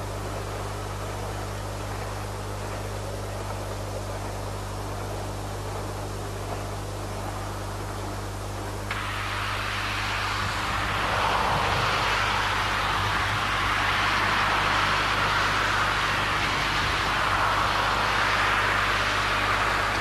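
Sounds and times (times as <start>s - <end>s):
low hum: 0.0s - 20.0s
distant steam locomotive exhaust: 8.9s - 20.0s.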